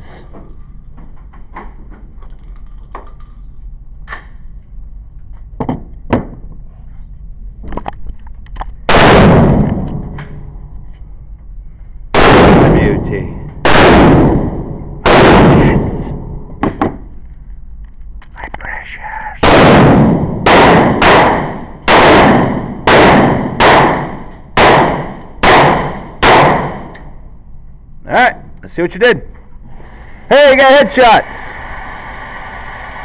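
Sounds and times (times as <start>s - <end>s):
echoing gunshots: 8.9s - 10.4s, 12.1s - 17.0s, 19.4s - 27.0s.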